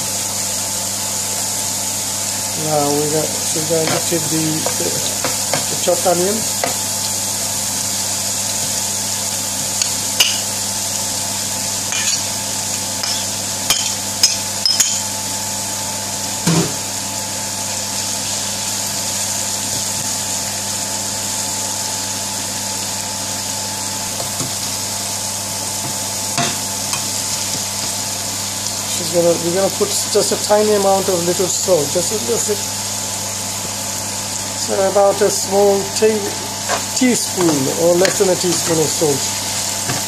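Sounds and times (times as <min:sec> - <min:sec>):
oil sizzling in a frying pan: 0:00.0 - 0:40.0.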